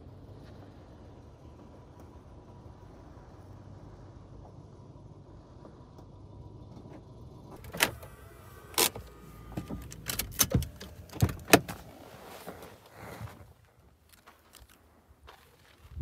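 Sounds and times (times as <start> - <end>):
car door clunks and knocks: 9.4 - 11.8.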